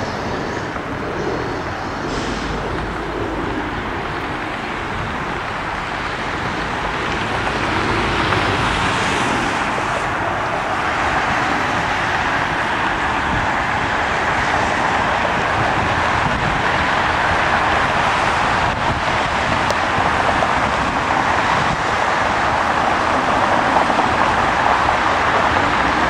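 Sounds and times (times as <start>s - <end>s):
jet engines roaring: 0.0s - 26.0s.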